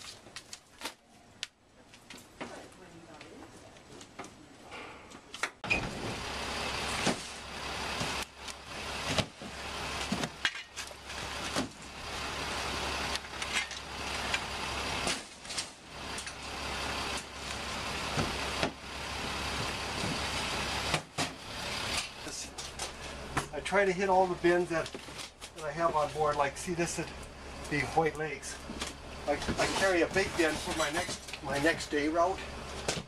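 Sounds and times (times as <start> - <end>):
hand truck and bins clattering: 19.5 - 33.0.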